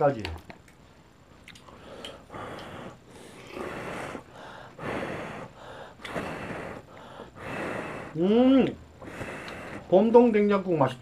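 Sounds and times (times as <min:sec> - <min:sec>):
person chewing: 0:01.4 - 0:04.2
heavy breathing through nose: 0:01.6 - 0:10.0.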